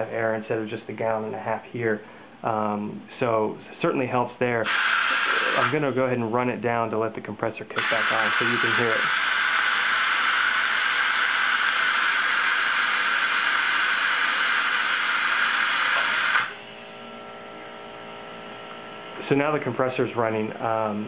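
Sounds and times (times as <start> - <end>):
air compressor humming: 0.0 - 6.4, 7.7 - 21.0
compressed air hissing from blow-gun: 4.6 - 5.8, 7.8 - 14.3.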